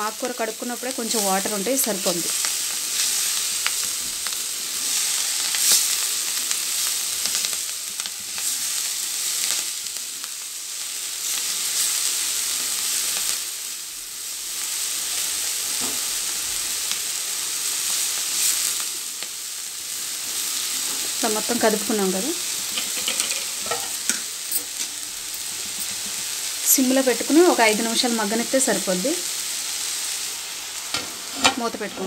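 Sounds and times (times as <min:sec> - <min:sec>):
greens sizzling in hot oil: 0:00.0 - 0:32.0
spatula scraping: 0:22.7 - 0:26.3.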